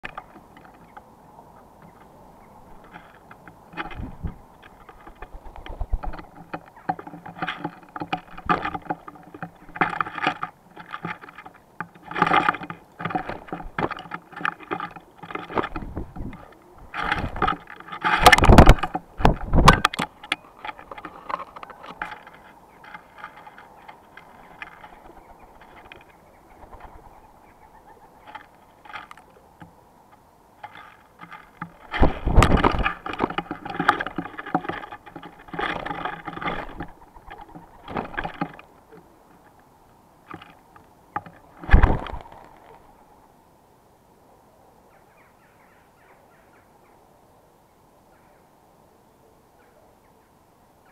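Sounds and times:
birds pecking on wooden tray: 0:00.0 - 0:43.1
rustling seed: 0:02.7 - 0:27.4, 0:30.6 - 0:39.6, 0:40.2 - 0:43.1.

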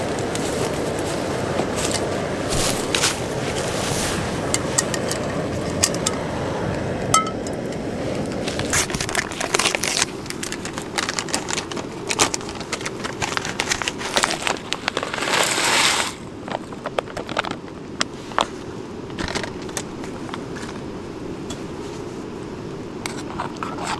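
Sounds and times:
heating water crackling: 0:00.0 - 0:23.9
packet crinkling: 0:08.4 - 0:17.8.

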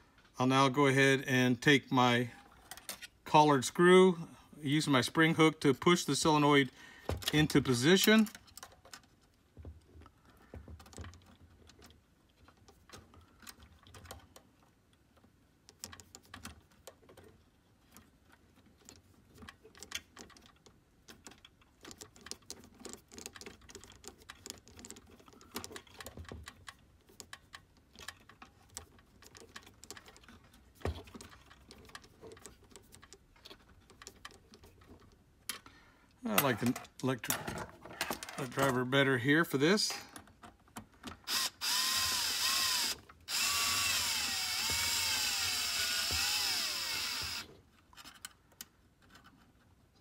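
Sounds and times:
nut driver clicking: 0:41.0 - 0:47.5.

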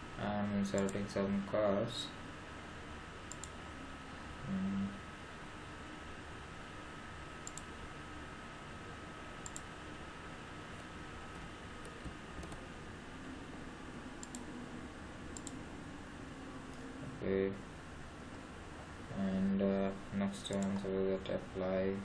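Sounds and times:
steady background hiss: 0:00.0 - 0:22.0
faint computer mouse clicks: 0:03.3 - 0:03.6, 0:07.4 - 0:07.7, 0:09.4 - 0:09.7, 0:14.2 - 0:14.5, 0:15.4 - 0:15.6.

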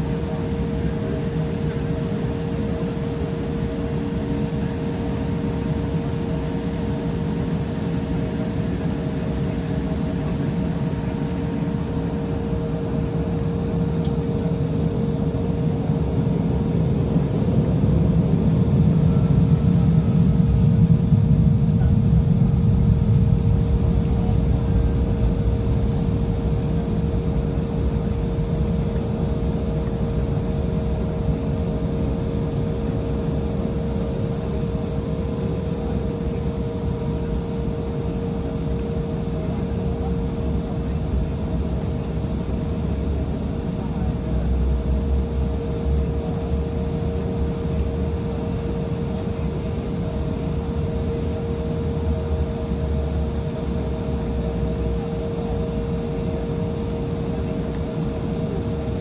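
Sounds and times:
jet engines rumbling: 0:00.0 - 0:59.0
steady droning tone: 0:15.6 - 0:59.0.

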